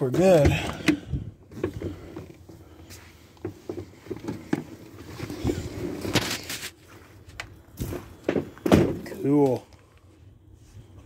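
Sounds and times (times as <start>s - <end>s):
rustling and knocks: 3.3s - 9.2s.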